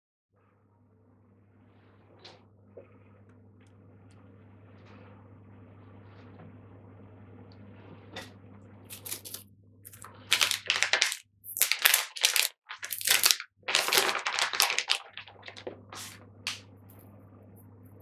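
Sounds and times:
low steady hum: 0:00.4 - 0:18.0
plastic pouch crinkling: 0:08.9 - 0:16.6.

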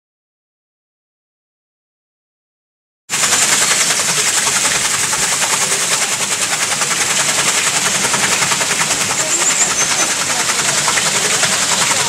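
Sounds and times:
water splashing off water wheel: 0:03.1 - 0:12.0.

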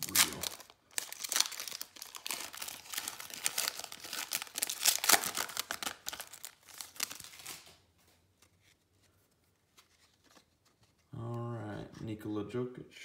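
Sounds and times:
plastic wrapper crinkling and tearing: 0:00.0 - 0:07.8.

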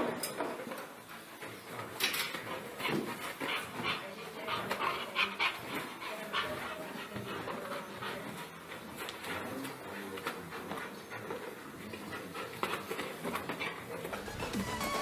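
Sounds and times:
dog panting and whining: 0:00.9 - 0:14.4.

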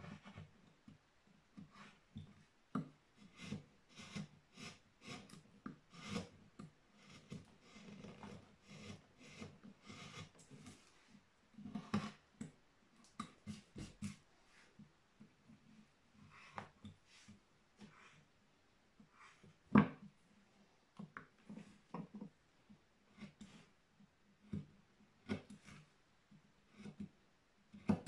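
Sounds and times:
chisel scraping wood: 0:01.6 - 0:02.0, 0:03.2 - 0:10.9, 0:11.6 - 0:12.2, 0:23.1 - 0:23.7, 0:26.7 - 0:27.1.

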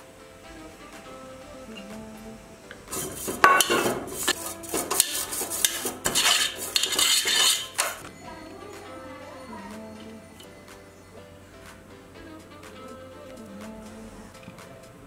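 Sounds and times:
brush scrubbing metal tray: 0:02.9 - 0:08.0.

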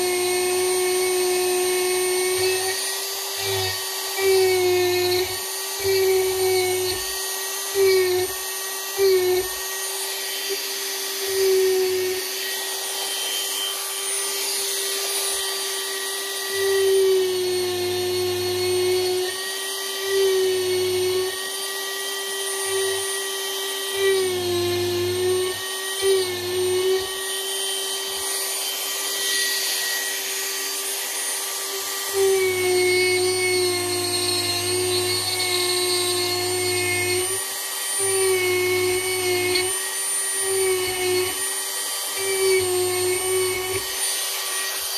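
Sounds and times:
rotary tool carving wood: 0:00.0 - 0:44.9.

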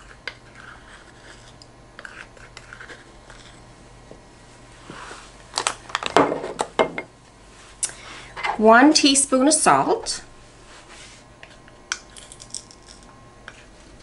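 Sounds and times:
spoon scraping a bowl: 0:00.0 - 0:03.6.

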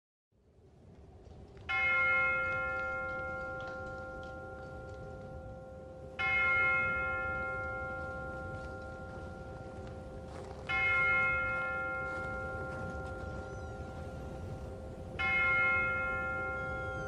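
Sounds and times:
bell ringing: 0:01.8 - 0:17.0.

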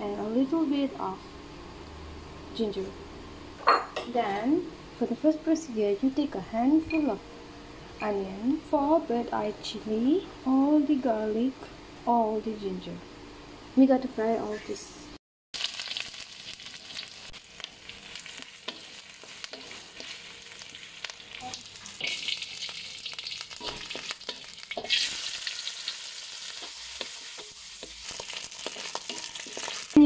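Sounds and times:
food sizzling in hot oil: 0:15.6 - 0:30.0
wooden spatula scraping a wok: 0:26.4 - 0:30.0.

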